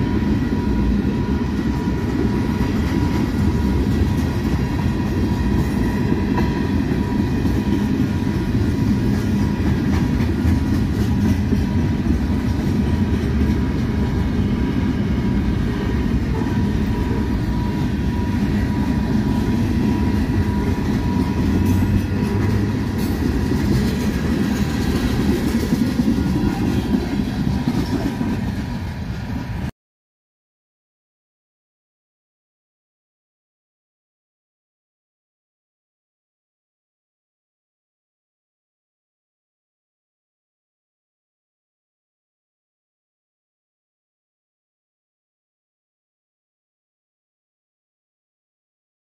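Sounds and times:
freight train wheels rumbling on rails: 0:00.0 - 0:29.7
clickety-clack over rail joints: 0:00.5 - 0:29.7.

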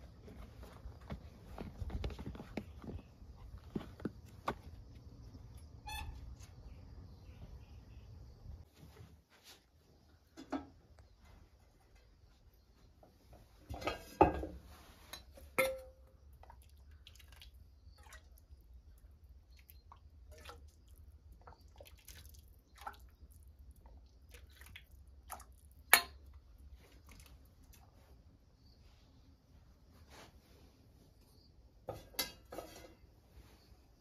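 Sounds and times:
ladle clinking on metal: 0:15.1 - 0:16.0
metal pot lid clattering: 0:31.9 - 0:32.9.

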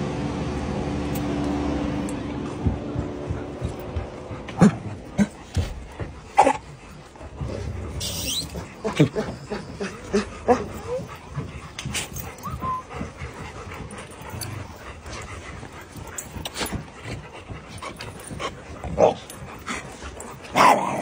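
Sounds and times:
dogs shuffling: 0:01.3 - 0:21.0
dogs whimpering: 0:04.4 - 0:21.0
dog whining: 0:07.4 - 0:15.1
dog yelp: 0:08.0 - 0:11.1, 0:12.2 - 0:13.0.

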